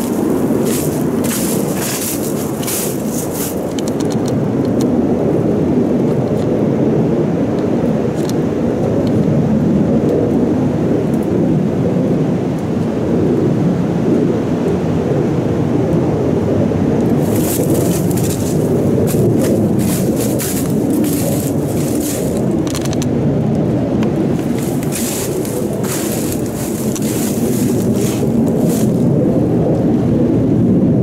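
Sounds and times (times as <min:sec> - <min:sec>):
footsteps in dry leaves: 0:00.0 - 0:03.9, 0:17.2 - 0:22.6, 0:24.4 - 0:29.1
low rumble: 0:17.1 - 0:31.0.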